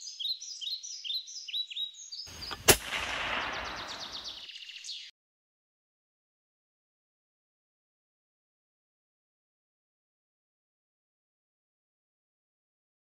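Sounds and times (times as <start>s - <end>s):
small birds chirping: 0.0s - 5.1s
gunshot with rolling echo: 2.4s - 4.4s.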